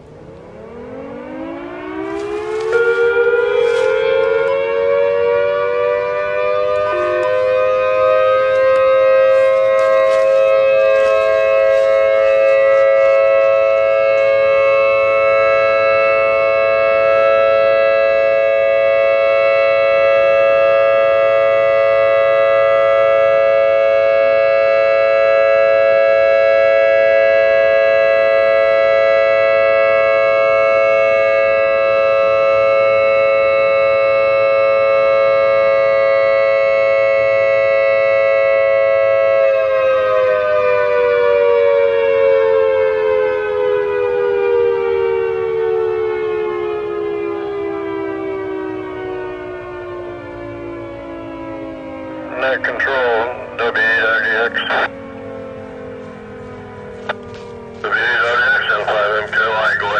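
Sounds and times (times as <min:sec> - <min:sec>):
civil defense siren steady chord: 0:00.0 - 0:59.9
faint crackles: 0:02.0 - 0:04.6, 0:08.5 - 0:13.3, 0:56.0 - 0:59.9.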